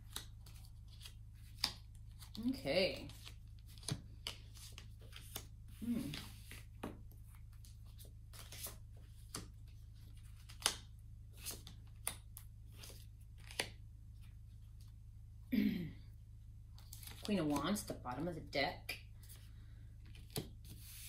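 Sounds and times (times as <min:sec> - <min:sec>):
cards being shuffled: 0:00.0 - 0:13.8, 0:16.8 - 0:17.6, 0:20.0 - 0:21.0.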